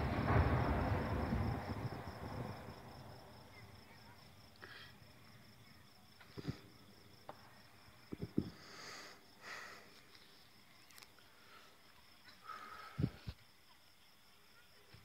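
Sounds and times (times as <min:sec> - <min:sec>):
crickets chirping: 0:00.0 - 0:15.0
short dull thumps: 0:08.1 - 0:08.6.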